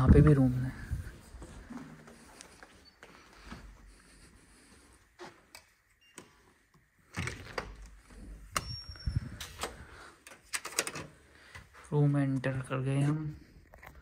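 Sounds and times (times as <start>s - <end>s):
keycard lock beep: 8.5s - 9.5s.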